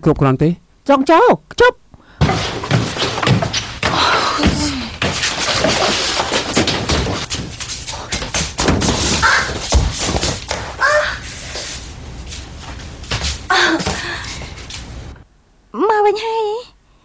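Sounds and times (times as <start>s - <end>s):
thumps knocks and bangs: 2.2s - 7.6s, 8.2s - 10.7s.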